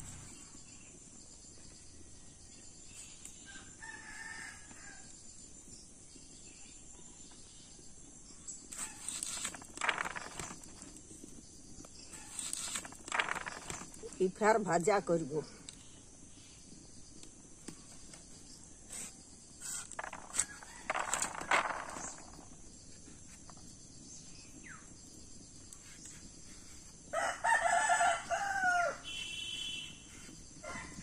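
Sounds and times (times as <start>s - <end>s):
rooster crowing: 27.1s - 29.2s.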